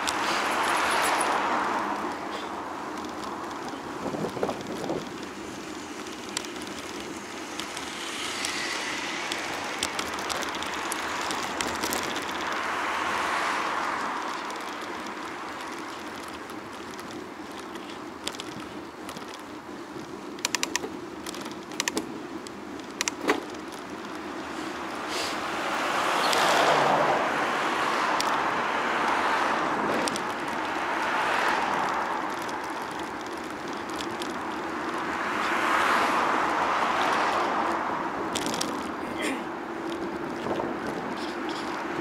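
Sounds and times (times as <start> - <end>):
traffic rush: 0.0 - 42.0
sharp clicks: 20.3 - 24.2.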